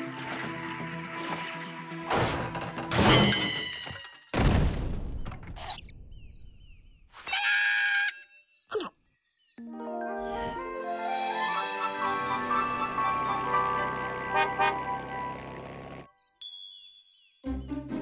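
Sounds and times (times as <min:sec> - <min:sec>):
cartoon music: 0:09.6 - 0:16.0.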